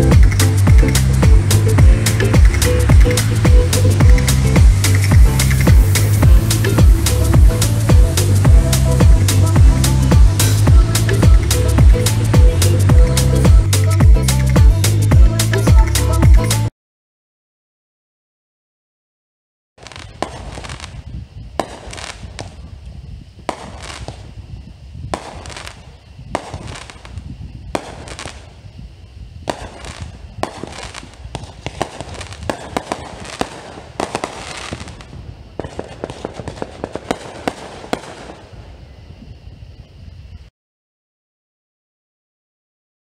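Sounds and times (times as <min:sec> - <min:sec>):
low rumble: 0:00.0 - 0:15.4
fireworks bangs and crackling: 0:00.0 - 0:16.6, 0:19.8 - 0:39.3.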